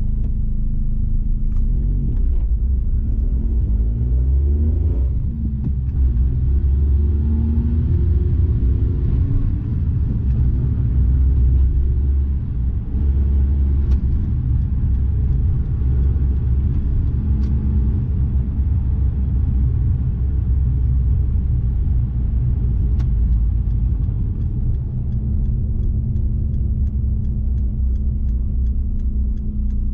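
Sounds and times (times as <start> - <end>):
car engine and road rumble: 0.0 - 29.9
light regular ticking: 9.6 - 29.9.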